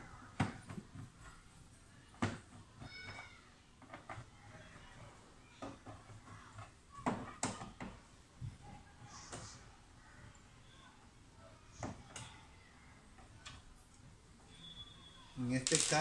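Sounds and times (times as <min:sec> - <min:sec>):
clicks and knocks of plastic: 0:02.1 - 0:08.7.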